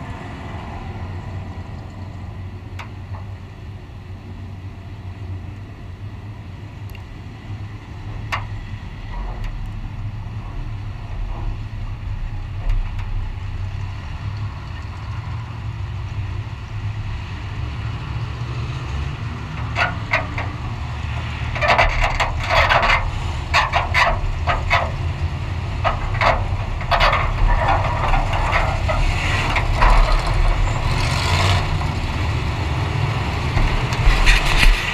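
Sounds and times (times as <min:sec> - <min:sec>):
metal clanking and rattling: 0:19.5 - 0:20.8, 0:21.4 - 0:32.3.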